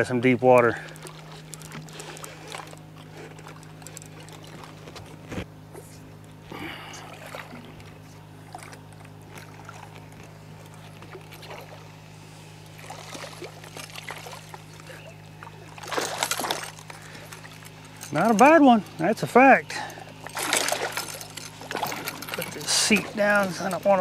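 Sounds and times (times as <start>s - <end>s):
boat motor hum: 0.0s - 24.0s
water noise: 0.0s - 24.0s
splash: 12.8s - 14.6s, 15.6s - 16.8s, 20.3s - 23.1s.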